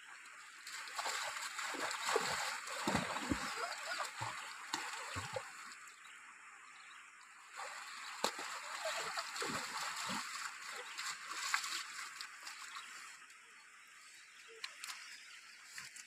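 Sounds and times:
water splashing from wading: 0:00.5 - 0:05.8, 0:07.5 - 0:13.1.

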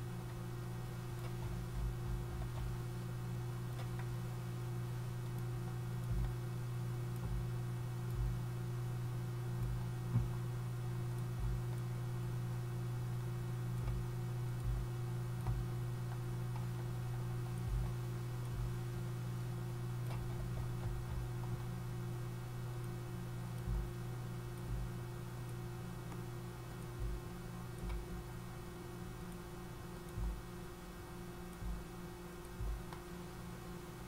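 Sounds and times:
low electrical hum: 0:00.0 - 0:34.0
computer mouse clicking: 0:01.1 - 0:03.1, 0:03.7 - 0:04.2, 0:13.7 - 0:18.7, 0:20.0 - 0:21.7, 0:31.5 - 0:33.2.

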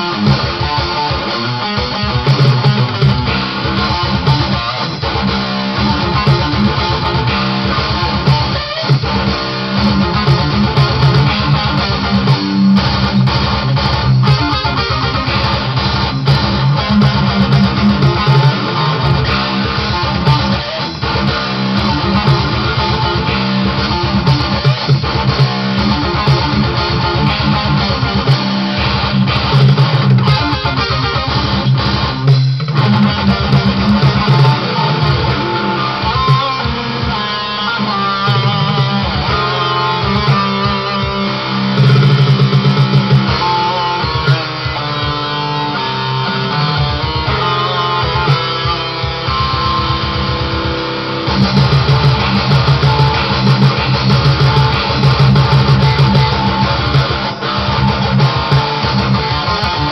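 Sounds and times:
electric guitar metal riff: 0:00.0 - 0:59.9.

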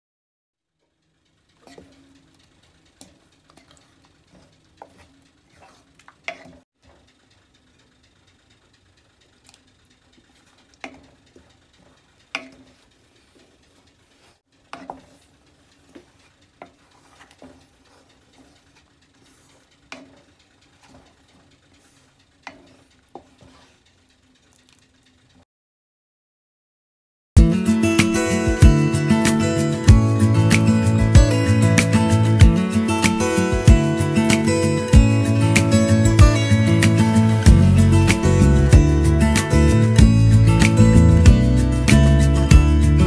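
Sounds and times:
wooden spatula scraping thick soup: 0:01.6 - 0:02.2, 0:03.0 - 0:07.0, 0:10.3 - 0:23.8.

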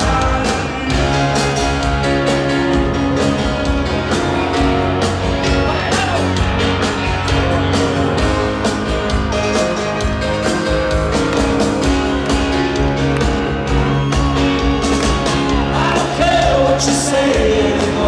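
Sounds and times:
live rock band playing: 0:00.0 - 0:18.0
steady drum beat: 0:00.0 - 0:18.0.

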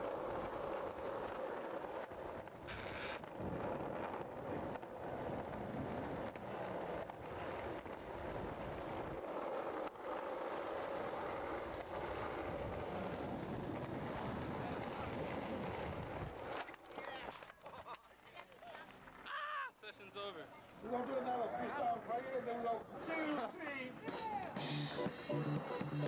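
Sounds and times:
skateboard wheel clicks: 0:00.0 - 0:19.3
skateboard wheels rolling on asphalt: 0:00.0 - 0:26.0.

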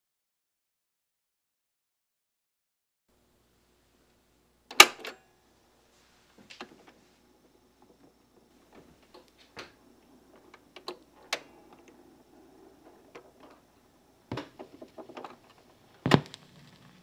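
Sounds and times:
turntable arm clicking and clunking: 0:04.7 - 0:05.2, 0:08.7 - 0:16.4
stylus thump on vinyl: 0:16.0 - 0:16.4.

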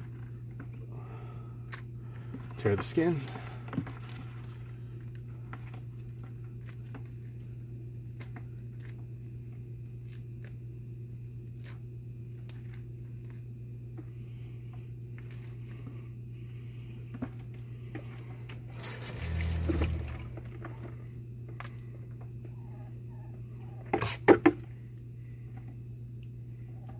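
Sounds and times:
steady low hum: 0:00.0 - 0:26.9
wet squishing and tearing skin: 0:08.0 - 0:13.5.

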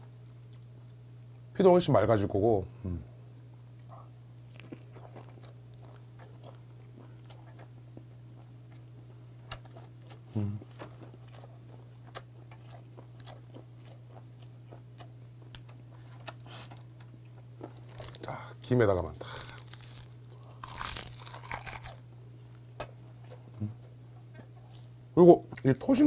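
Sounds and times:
steady low hum: 0:00.0 - 0:26.0
close chewing with wet crunches: 0:04.5 - 0:18.3.

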